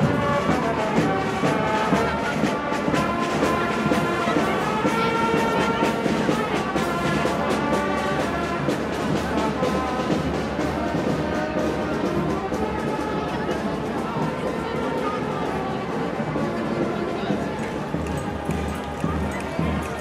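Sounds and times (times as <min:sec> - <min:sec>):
brass instruments: 0:00.0 - 0:20.0
steady drum beat: 0:17.6 - 0:20.0.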